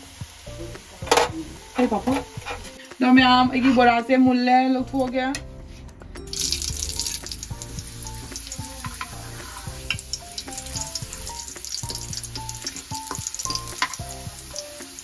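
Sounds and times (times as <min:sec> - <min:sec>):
hot oil sizzling and crackling: 0:00.0 - 0:03.2, 0:06.3 - 0:15.0
background music: 0:00.0 - 0:15.0.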